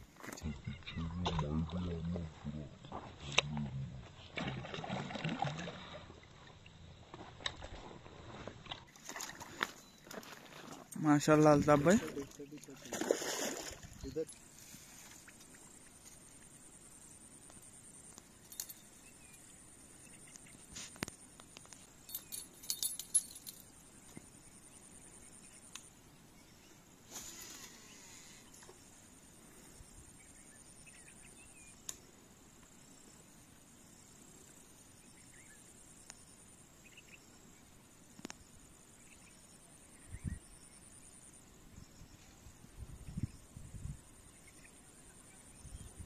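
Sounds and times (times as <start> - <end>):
water sloshing and lapping: 4.0 - 15.7
metallic jingling and clicking: 18.4 - 18.9, 22.0 - 23.7.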